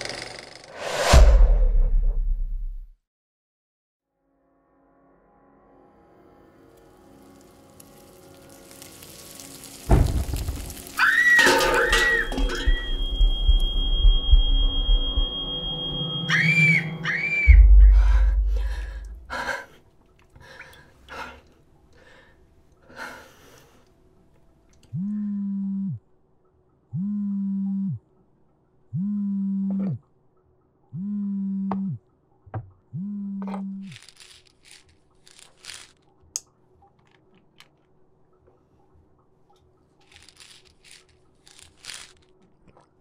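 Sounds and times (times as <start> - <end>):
deep low thud and rumble: 12.6 - 15.4, 17.5 - 19.3
phone vibrating on table: 24.9 - 26.0, 27.0 - 28.0, 29.0 - 30.0, 31.0 - 32.0, 32.9 - 34.0.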